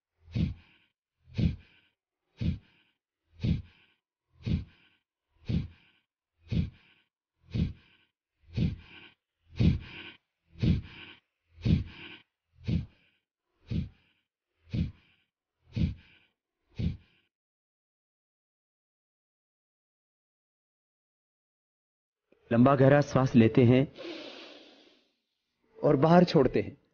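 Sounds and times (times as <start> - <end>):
forceful nasal exhalations: 0.3 - 17.2, 23.9 - 25.1.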